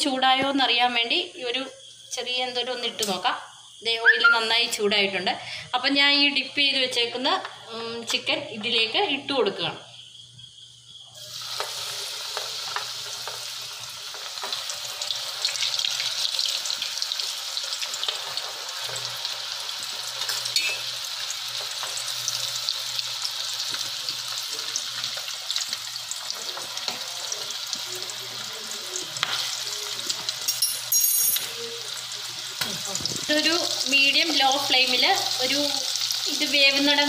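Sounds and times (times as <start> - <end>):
chicken sizzling in hot oil: 10.9 - 37.0.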